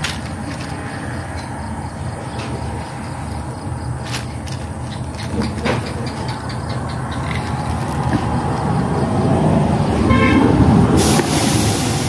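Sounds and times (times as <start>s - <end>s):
vehicle engine rumbling: 0.0s - 12.0s
horn toot: 10.0s - 11.6s
sudden hiss: 10.9s - 12.0s.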